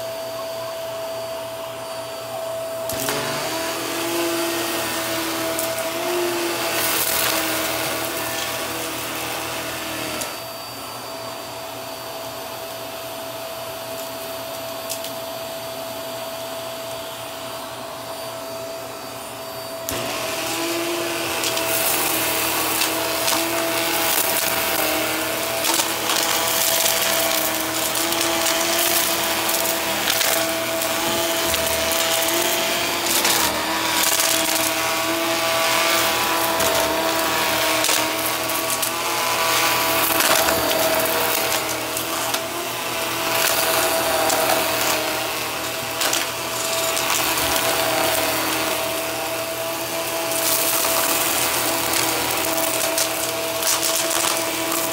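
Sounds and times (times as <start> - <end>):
vacuum cleaner running: 0.0 - 54.9
debris rattling in vacuum nozzle: 19.9 - 49.3, 49.9 - 54.9.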